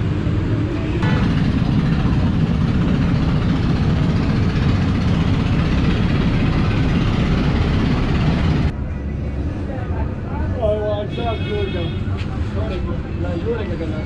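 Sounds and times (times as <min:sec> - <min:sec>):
gas burner rumbling: 0:00.0 - 0:08.8.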